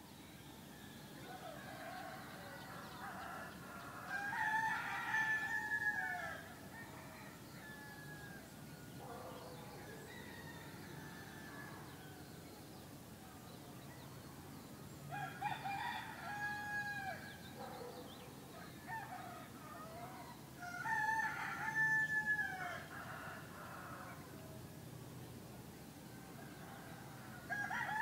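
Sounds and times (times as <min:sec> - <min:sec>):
distant roosters crowing: 0:01.0 - 0:12.5, 0:15.1 - 0:24.6, 0:26.1 - 0:28.0
rooster crowing loudly: 0:19.8 - 0:24.1, 0:27.4 - 0:28.0.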